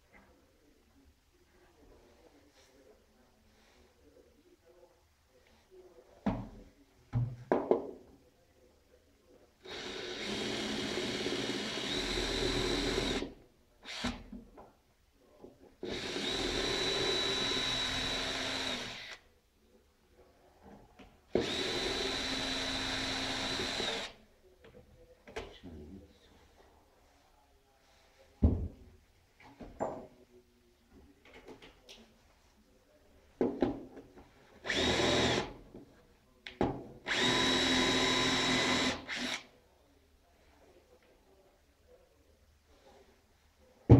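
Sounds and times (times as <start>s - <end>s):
electric drill whining: 15.9s - 19.2s, 21.4s - 24.1s, 34.7s - 35.5s, 37.1s - 39.4s.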